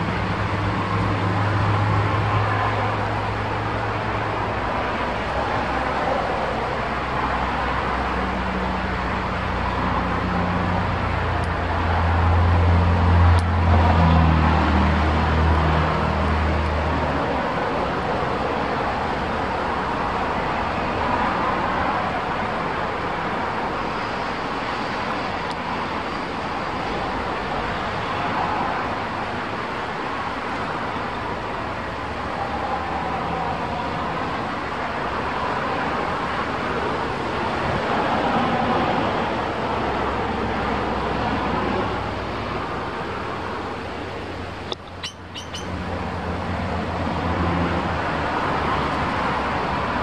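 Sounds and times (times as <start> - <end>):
high bird chirps: 44.7 - 45.8.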